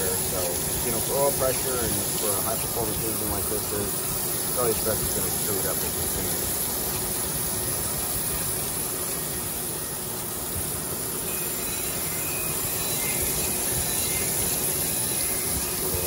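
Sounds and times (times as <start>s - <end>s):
faint machine hum: 0.0s - 16.0s
grinding wheel hissing on metal: 0.0s - 16.0s.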